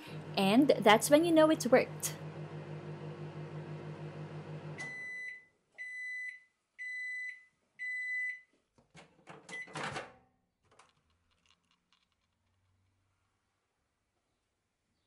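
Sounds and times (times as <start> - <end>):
microwave pulsing hum: 0.0 - 5.4
microwave beeps: 2.3 - 8.5, 9.5 - 9.8.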